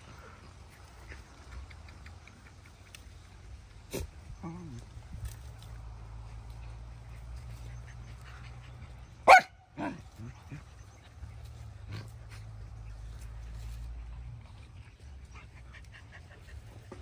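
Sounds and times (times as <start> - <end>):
dogs yipping: 7.0 - 10.0
dog barking: 9.2 - 10.0.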